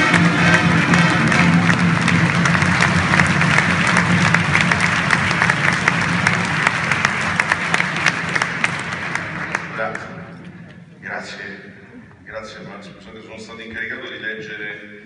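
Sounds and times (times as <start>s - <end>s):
music: 0.0s - 9.6s
audience applauding: 0.0s - 10.4s.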